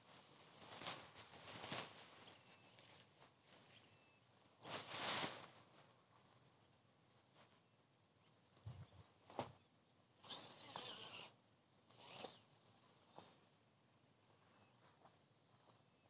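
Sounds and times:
rustling swishes: 0:00.0 - 0:03.8, 0:04.6 - 0:05.9
high-pitched insect drone: 0:10.2 - 0:12.9.

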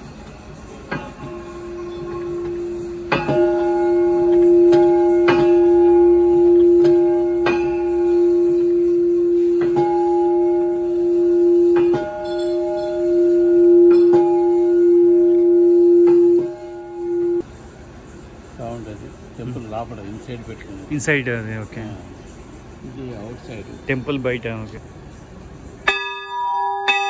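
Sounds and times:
large bronze bell ringing: 0:01.0 - 0:17.4, 0:25.8 - 0:27.0.

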